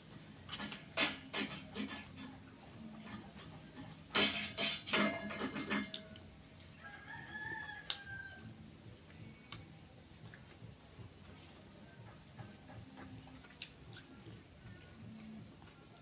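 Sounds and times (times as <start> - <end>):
rooster crowing: 6.8 - 8.6.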